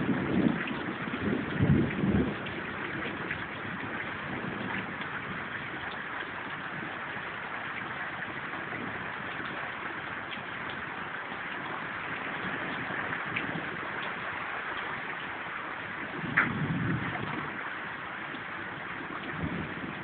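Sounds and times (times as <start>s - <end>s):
faint ticks of raindrops: 0.0s - 20.0s
steady rain hiss: 0.0s - 20.0s.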